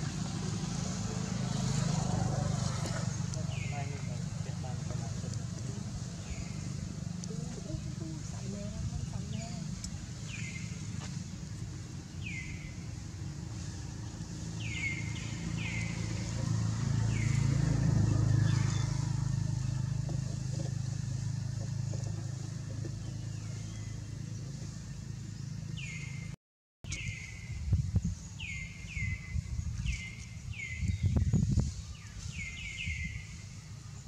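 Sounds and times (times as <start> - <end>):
vehicle engine rumbling past: 0.0 - 26.4.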